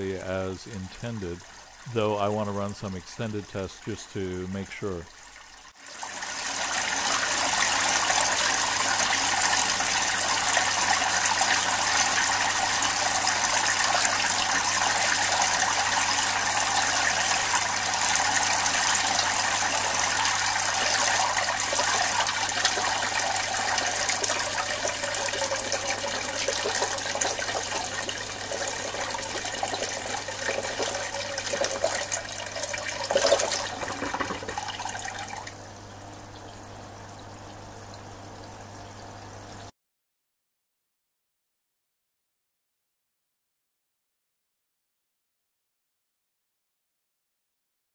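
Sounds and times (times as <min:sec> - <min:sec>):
water splashing into tank: 0:05.3 - 0:35.6.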